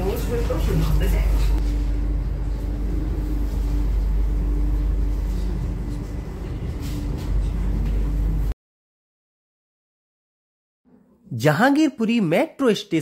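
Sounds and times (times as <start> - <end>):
train rumble from inside carriage: 0.0 - 8.5.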